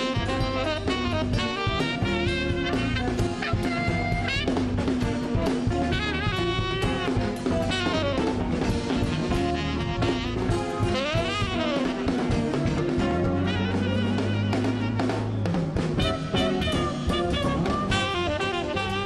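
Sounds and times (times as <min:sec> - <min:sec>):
drum kit: 0:00.0 - 0:19.0
tenor saxophone: 0:00.0 - 0:19.0.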